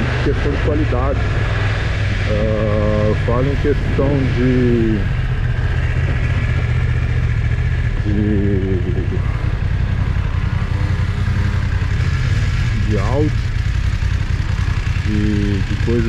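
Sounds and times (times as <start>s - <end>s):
heavy wind rumble on microphone: 0.0s - 12.0s
motorcycle engine running at low speed: 0.0s - 16.0s.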